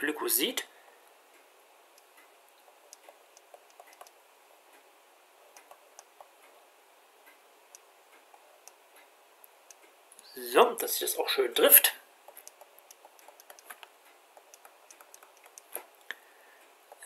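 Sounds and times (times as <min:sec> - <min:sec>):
pen tapping on tablet: 0:12.3 - 0:15.7.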